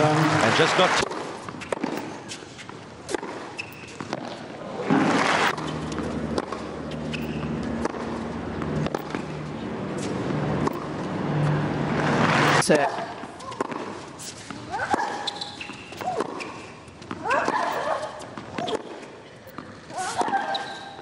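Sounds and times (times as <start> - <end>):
crowd noise: 0.0 - 2.3, 3.8 - 16.0
tennis ball bouncing on hard court: 1.0 - 11.0, 12.0 - 20.8
tennis ball struck by rackets: 1.0 - 11.0, 12.0 - 20.5.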